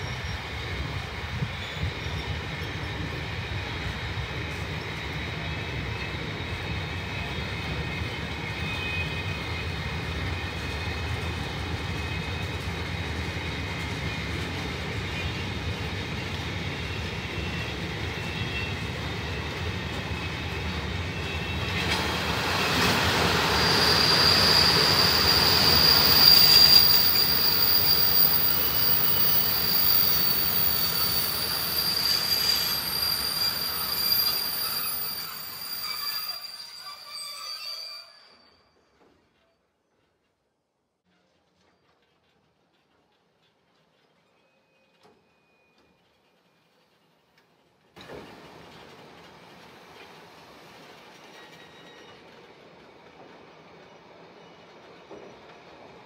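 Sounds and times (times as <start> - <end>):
freight train rumbling past: 0.0 - 37.8
high wheel squeal: 16.7 - 38.9, 51.1 - 55.6.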